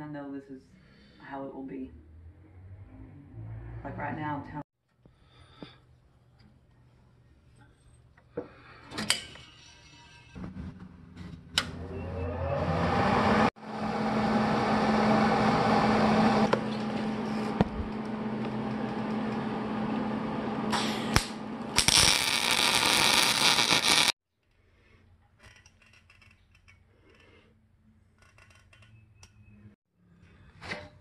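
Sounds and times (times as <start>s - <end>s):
welder hum: 11.6s - 24.2s
welding arc sizzle: 20.7s - 24.2s.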